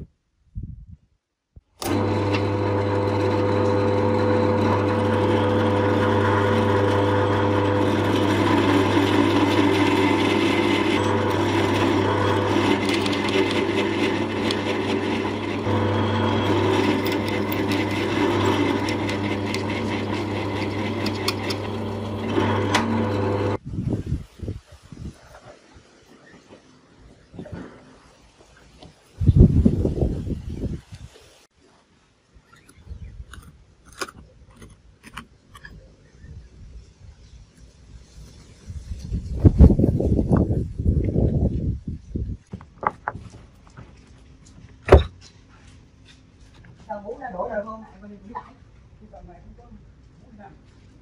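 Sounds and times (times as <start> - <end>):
drill bit cutting scratchily: 1.8 - 23.6
drill press motor hum: 1.8 - 23.6.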